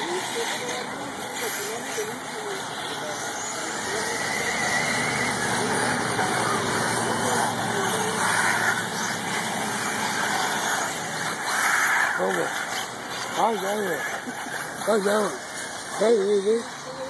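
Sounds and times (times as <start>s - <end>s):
rc buggy motors whining: 0.0s - 17.0s.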